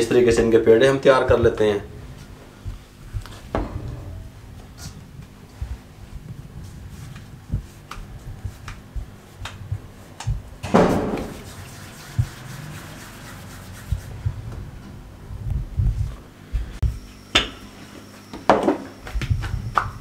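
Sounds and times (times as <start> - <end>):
hands rubbing dough in flour: 5.6 - 14.6.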